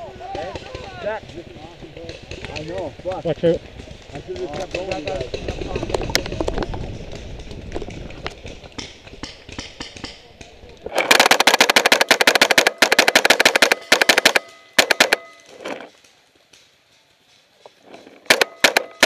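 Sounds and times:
paintball marker firing burst: 8.4s - 15.4s, 18.2s - 19.0s.

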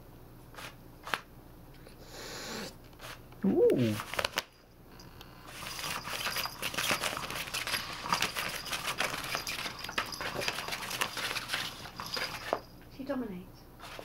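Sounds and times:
toy motor rattling and clicking: 5.5s - 12.7s.

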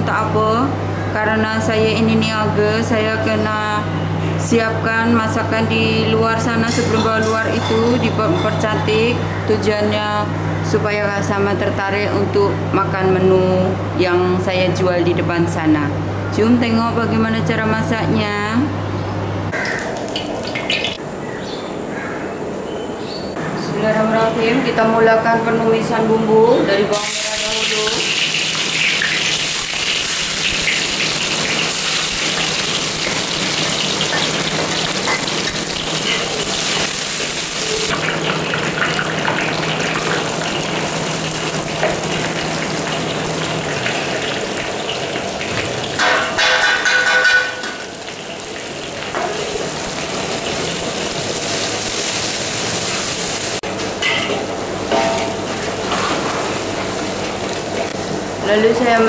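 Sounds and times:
food sizzling in hot oil: 27.0s - 53.6s.

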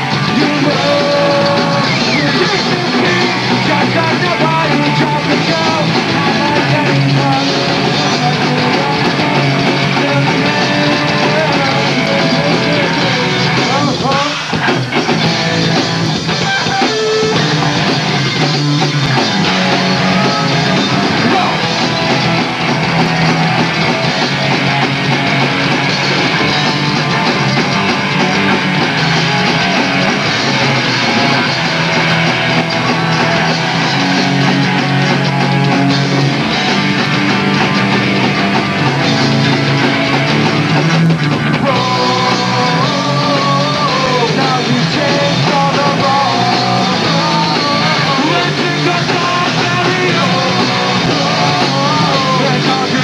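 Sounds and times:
singer shouting: 0.0s - 14.6s, 19.4s - 22.1s, 41.5s - 53.0s
bass guitar: 0.0s - 53.0s
distorted electric guitars: 0.0s - 53.0s
drums: 0.0s - 53.0s.

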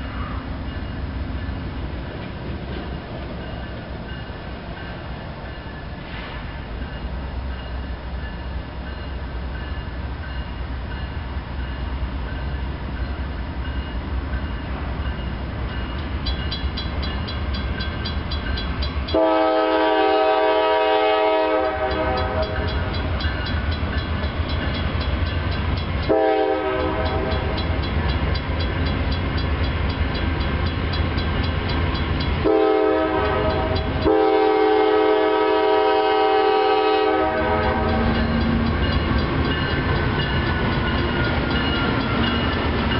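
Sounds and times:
crossing bell ticking: 0.7s - 5.9s, 6.8s - 19.2s, 21.6s - 26.1s, 27.0s - 32.4s, 37.6s - 42.9s
locomotive air horn blasts: 19.1s - 22.7s, 26.1s - 27.6s, 32.4s - 38.4s.

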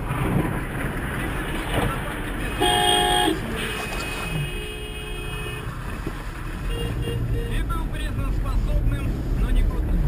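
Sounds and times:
road rumble inside car: 0.0s - 10.0s
vehicle horn honking: 2.5s - 5.7s, 6.7s - 7.6s.

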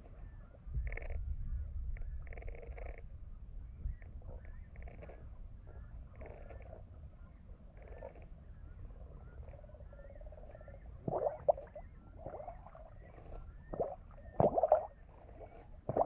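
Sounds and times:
water sloshing and gurgling: 7.7s - 16.0s
bubbles: 11.0s - 16.0s.

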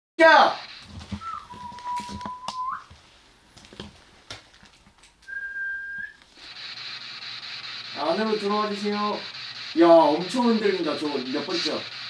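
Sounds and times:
thin whistled tones: 0.7s - 2.9s, 5.2s - 11.9s.

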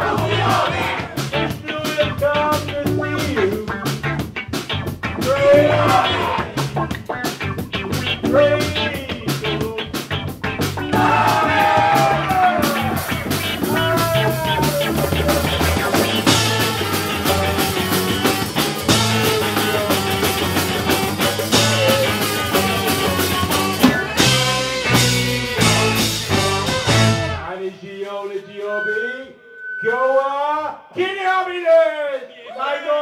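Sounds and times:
live band playing upbeat song: 0.0s - 27.5s.

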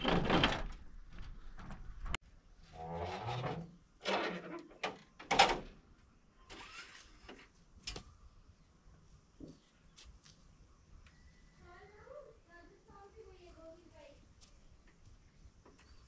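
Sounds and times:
metal panel creaking: 2.8s - 5.7s.

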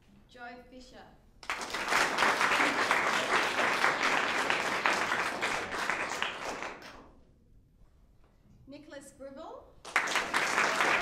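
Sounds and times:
audience applauding: 1.4s - 7.1s, 9.9s - 11.0s.

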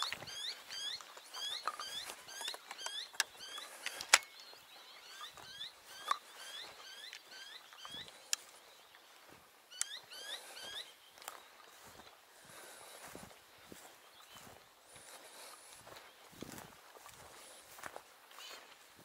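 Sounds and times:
bird chirping rapidly: 0.0s - 8.3s
sharp clicks and crackles: 1.0s - 4.5s.

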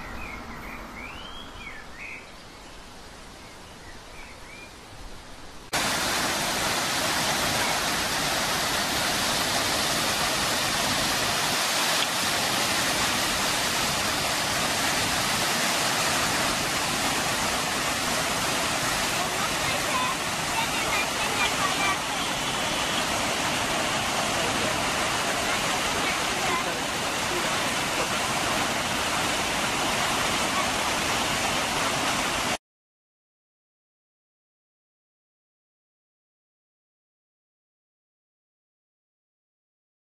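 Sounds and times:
faint bird chirps: 0.0s - 4.8s
waterfall pouring over rocks: 5.7s - 32.6s.

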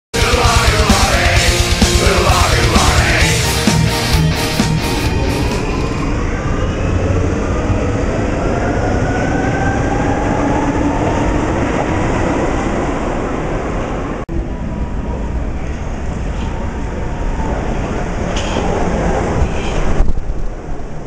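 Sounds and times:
wheels rumbling on rail: 0.2s - 21.0s.

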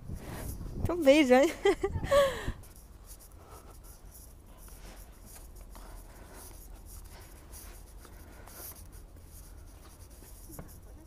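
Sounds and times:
faint scuffing footsteps: 2.7s - 11.0s.

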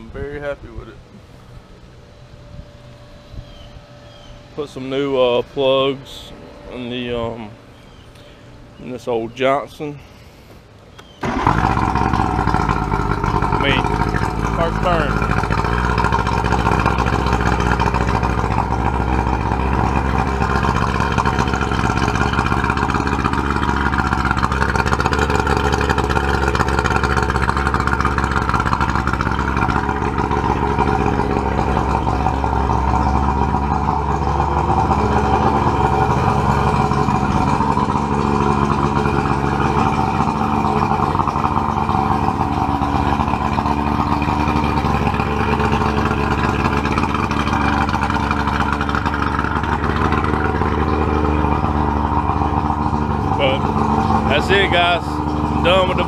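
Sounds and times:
outboard motor idling: 0.0s - 56.0s.

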